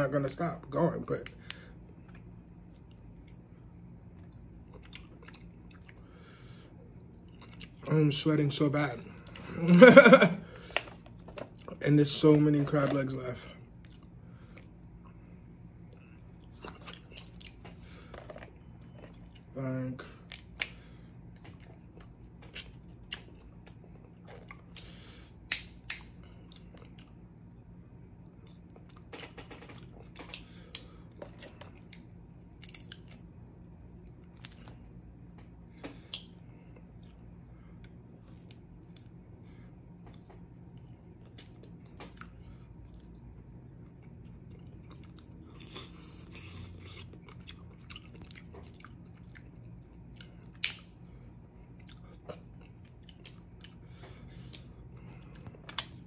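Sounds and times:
steady low hum: 0:00.0 - 0:56.0
chewing: 0:04.2 - 0:06.2, 0:06.9 - 0:07.8, 0:15.9 - 0:19.5, 0:20.3 - 0:25.0, 0:26.3 - 0:27.2, 0:43.8 - 0:50.9, 0:51.6 - 0:56.0.

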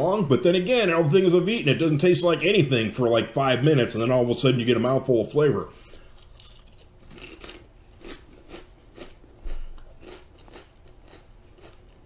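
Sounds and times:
potato chip crunching: 0:05.7 - 0:12.0.

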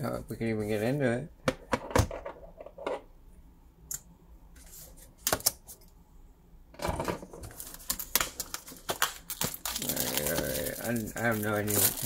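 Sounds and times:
plastic packaging crackling: 0:07.4 - 0:12.0.

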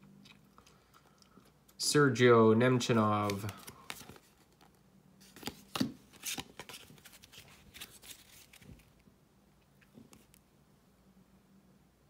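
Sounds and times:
cards sliding and snapping: 0:03.2 - 0:09.0.

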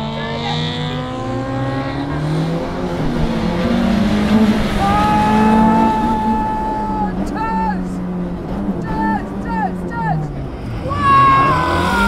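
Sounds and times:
rally car engine running hard: 0:00.0 - 0:12.0.

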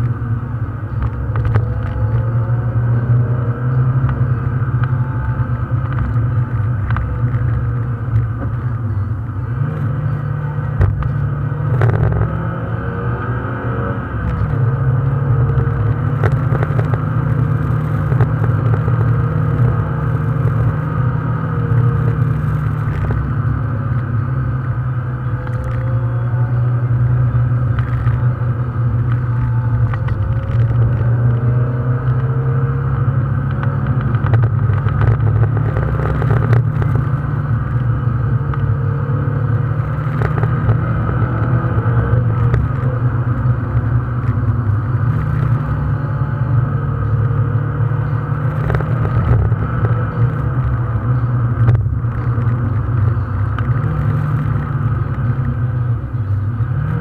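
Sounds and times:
car engine and tyre noise: 0:00.0 - 0:57.0.

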